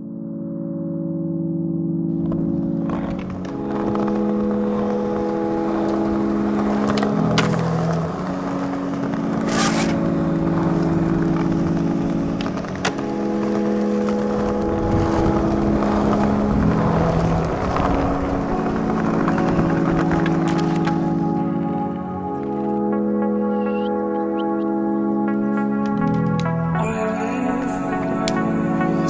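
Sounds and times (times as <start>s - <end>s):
electronic music with sustained chords: 0.0s - 29.0s
skateboard wheels rolling on concrete: 2.1s - 29.0s
skateboard clacks: 2.2s - 21.4s, 25.8s - 26.6s.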